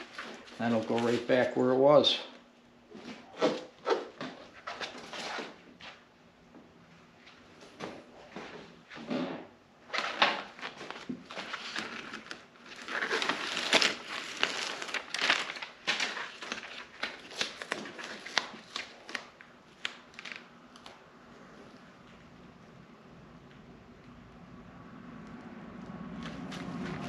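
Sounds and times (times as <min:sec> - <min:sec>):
foam crinkling and rustling: 0:00.0 - 0:01.7, 0:09.9 - 0:21.0.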